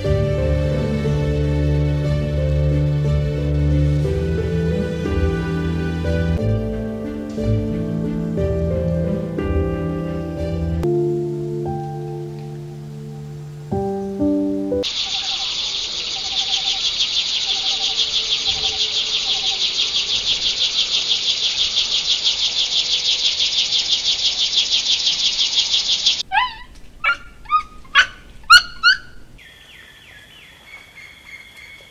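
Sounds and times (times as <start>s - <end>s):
downward-sliding chirps: 26.2s - 29.4s.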